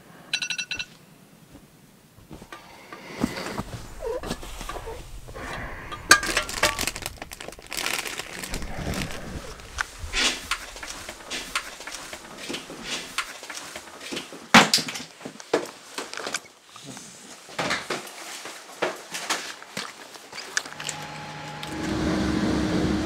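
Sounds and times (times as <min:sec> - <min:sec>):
clothing and gear rustling: 0:01.4 - 0:21.2.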